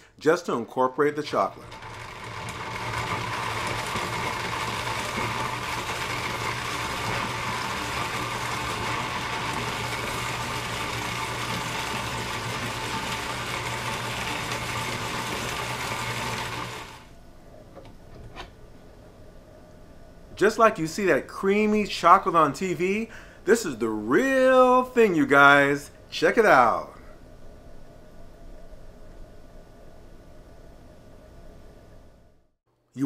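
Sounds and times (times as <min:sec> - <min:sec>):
blender motor running: 0:01.5 - 0:17.1.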